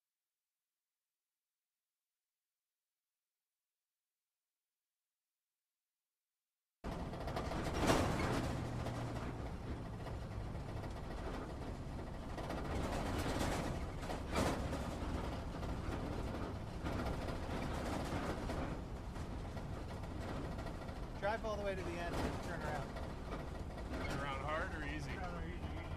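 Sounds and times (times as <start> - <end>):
engine and drivetrain rumble: 6.8 - 25.9
interior rattling: 6.8 - 25.9.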